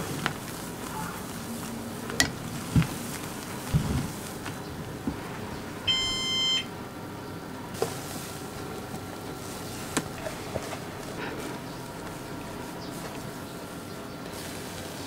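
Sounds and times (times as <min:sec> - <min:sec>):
electronic appliance beep: 0:05.8 - 0:06.8.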